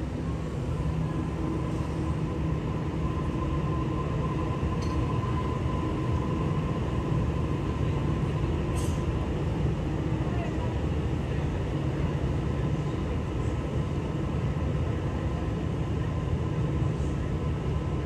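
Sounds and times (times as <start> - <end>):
electric train rolling past: 0.0 - 14.4.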